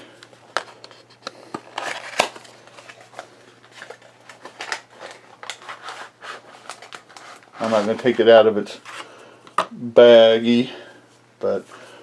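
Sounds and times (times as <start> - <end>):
packaging clicks and rustles: 0.2 - 8.2.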